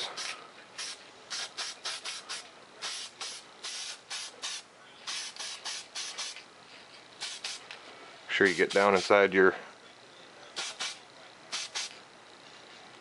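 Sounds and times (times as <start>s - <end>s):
aerosol spray can hissing: 0.0s - 6.4s, 7.2s - 7.6s, 10.6s - 12.0s.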